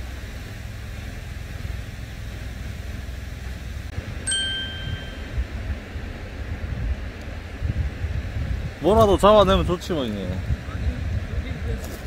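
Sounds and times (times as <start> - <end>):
steady low rumble: 0.0 - 12.0
bright chime: 4.3 - 5.4.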